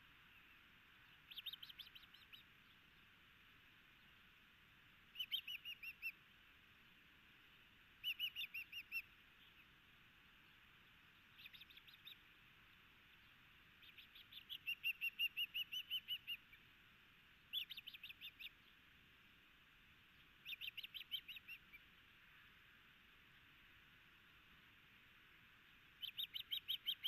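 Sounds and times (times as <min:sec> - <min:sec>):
faint steady hiss: 0:00.0 - 0:27.0
osprey whistled chirps: 0:01.1 - 0:02.8, 0:05.1 - 0:06.2, 0:08.0 - 0:09.6, 0:11.3 - 0:12.2, 0:13.8 - 0:16.6, 0:17.5 - 0:18.6, 0:20.4 - 0:21.8, 0:26.0 - 0:27.0.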